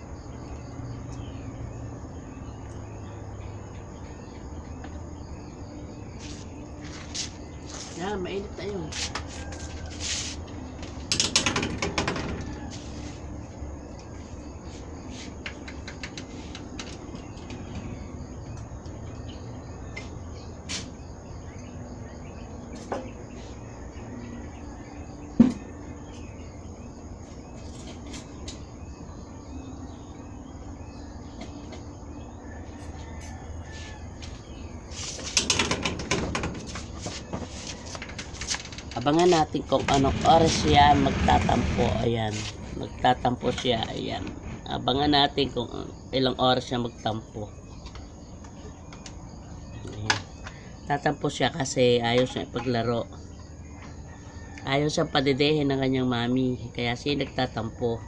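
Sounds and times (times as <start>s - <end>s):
sharp knocks: 11.0s - 12.6s, 35.3s - 37.5s.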